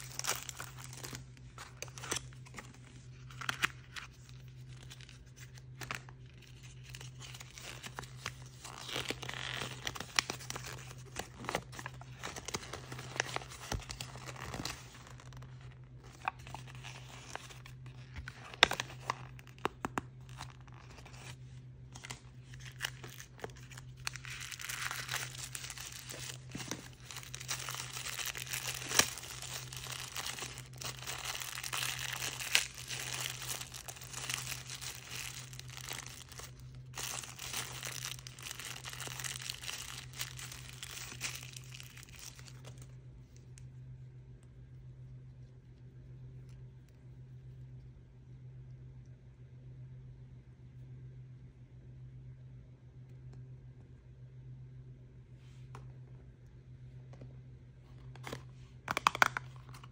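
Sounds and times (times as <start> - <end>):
plastic packaging crinkling: 0.0 - 43.0, 58.0 - 59.9.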